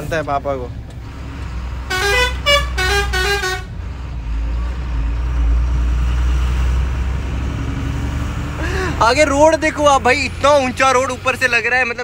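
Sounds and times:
truck engine rumbling: 0.0 - 12.0
truck horn toots: 1.8 - 3.8.

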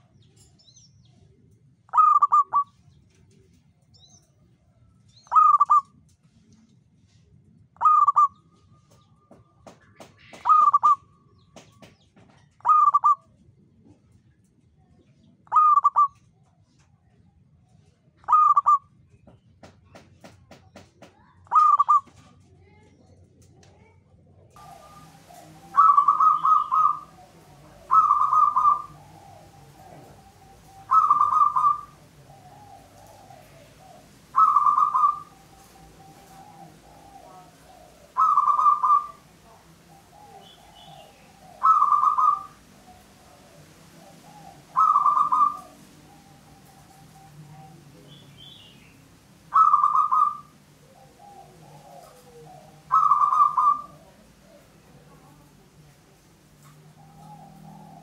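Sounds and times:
dove cooing: 1.4 - 3.5, 5.2 - 5.9, 7.8 - 9.0, 10.0 - 11.0, 12.5 - 13.3, 15.5 - 16.2, 18.2 - 18.8, 21.5 - 22.2, 24.6 - 58.0.

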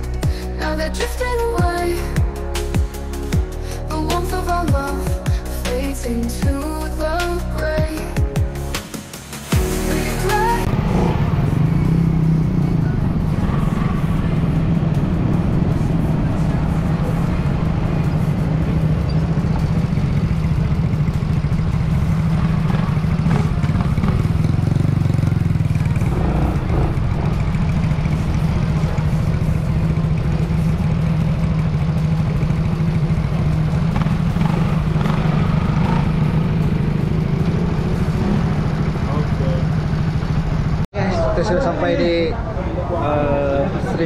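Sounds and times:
motor scooter engine humming: 9.4 - 40.8.

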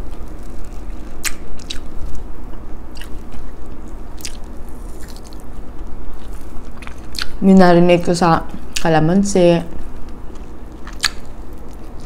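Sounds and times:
person chewing: 0.0 - 7.4, 9.8 - 12.0.

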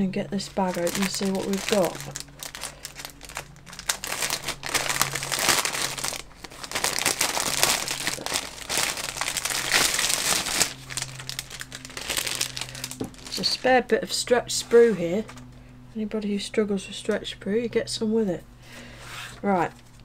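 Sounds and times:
plastic bag crinkling: 0.4 - 13.8.

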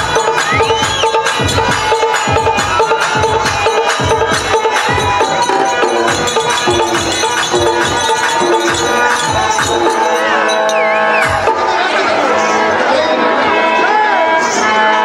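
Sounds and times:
drum strokes: 0.0 - 11.9
held harmonium notes: 0.0 - 15.0.

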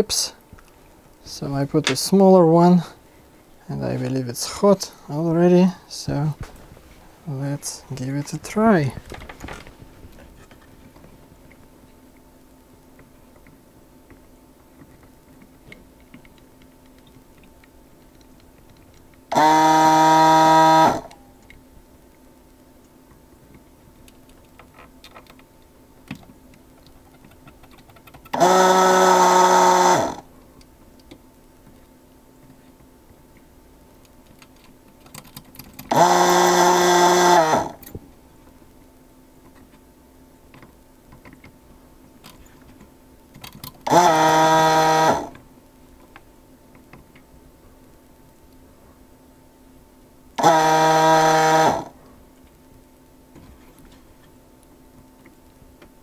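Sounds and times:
vacuum pump buzzing: 19.3 - 21.4, 28.1 - 30.4, 35.6 - 38.3, 43.8 - 45.5, 50.3 - 52.0.

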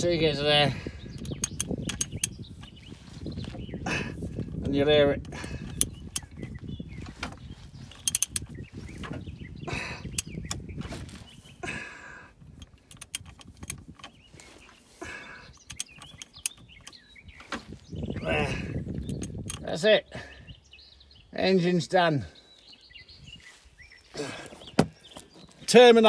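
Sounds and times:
metallic clicks and knocks: 1.2 - 2.4, 8.0 - 9.2, 12.6 - 14.2, 15.6 - 17.6, 19.0 - 19.8.

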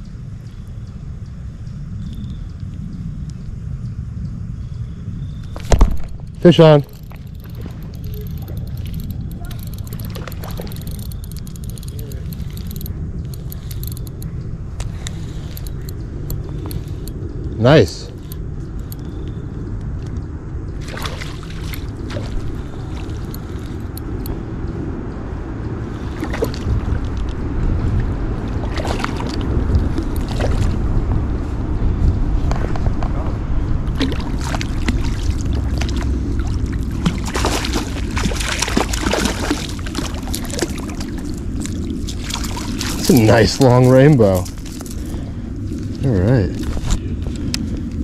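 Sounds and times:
low rumble of moving water: 0.0 - 48.0
wind on microphone: 0.0 - 48.0
fish splashing at surface: 34.0 - 41.3.

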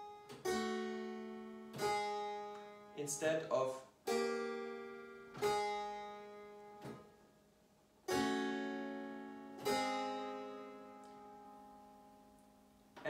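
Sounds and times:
harpsichord chords: 0.0 - 7.0, 7.9 - 13.0.

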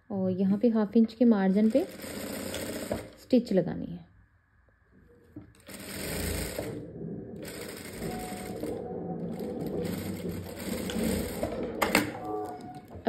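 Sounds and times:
sewing machine stitching: 1.5 - 3.2, 5.5 - 13.0.

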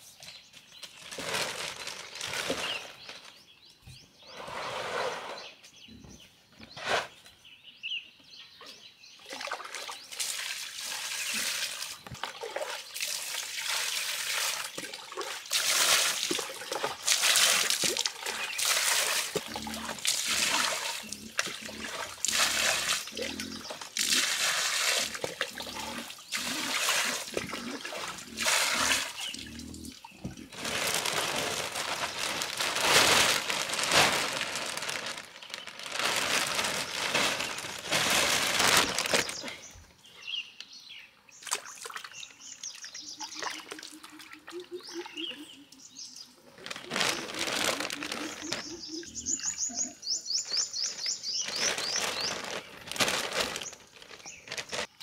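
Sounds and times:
plastic sheeting crinkling: 0.8 - 3.4, 30.2 - 39.6, 46.6 - 48.8, 51.4 - 55.0
water splashing: 9.3 - 39.6
bird chirping trill: 48.2 - 52.4.

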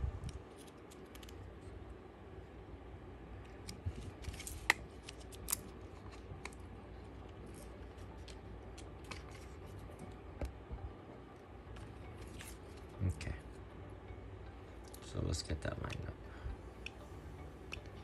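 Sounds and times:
plastic handling noises: 0.2 - 1.7, 3.4 - 10.6.

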